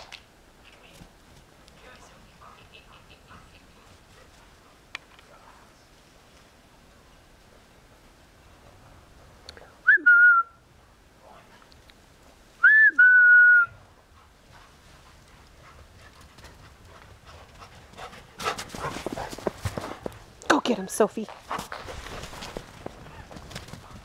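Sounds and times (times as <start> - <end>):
person whistling a call: 9.9 - 10.6, 12.6 - 13.8
dog paws crunching through snow: 14.2 - 20.3, 21.1 - 24.0.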